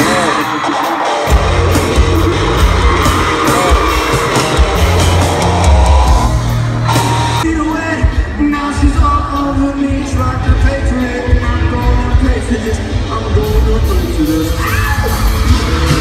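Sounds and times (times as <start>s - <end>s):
audience yelling and screaming: 0.0s - 10.2s, 11.0s - 16.0s
live pop-rock band: 0.0s - 16.0s.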